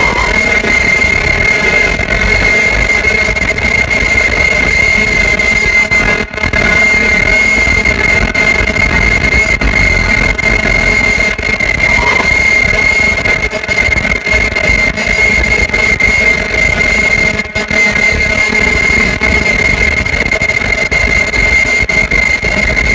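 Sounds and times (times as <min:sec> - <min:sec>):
mechanical rumble: 0:00.0 - 0:01.8, 0:11.6 - 0:13.4
high-pitched machine whine: 0:00.0 - 0:22.9.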